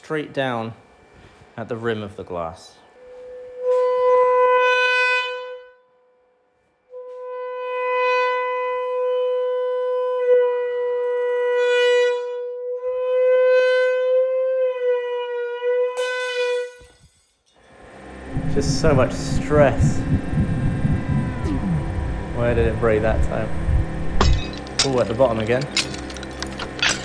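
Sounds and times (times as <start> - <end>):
loud distorted steady tone: 17.6 - 27.0
glass cracking: 24.2 - 27.0.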